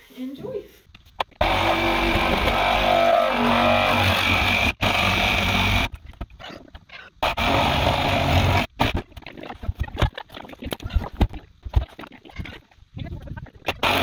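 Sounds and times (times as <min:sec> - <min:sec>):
power saw cutting plastic: 0:01.4 - 0:05.9, 0:07.2 - 0:09.1, 0:13.7 - 0:14.0.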